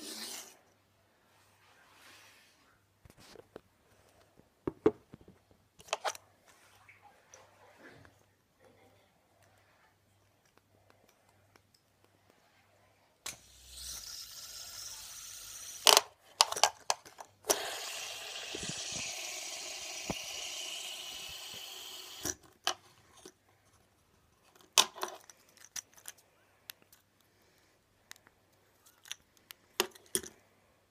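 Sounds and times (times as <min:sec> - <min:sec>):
fidget spinner whirring: 0:00.0 - 0:00.6, 0:13.2 - 0:16.0, 0:17.4 - 0:22.4.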